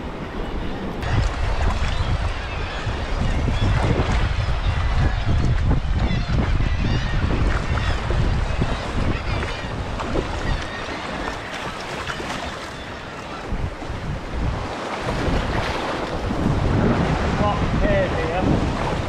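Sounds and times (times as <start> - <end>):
wind buffeting microphone: 0.0 - 19.0
sea water sloshing and splashing: 7.4 - 17.5.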